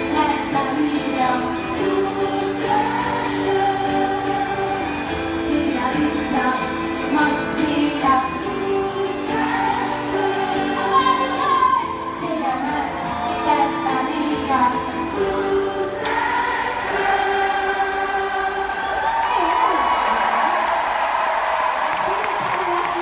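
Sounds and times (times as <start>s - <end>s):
woman singing over band: 0.0s - 18.3s.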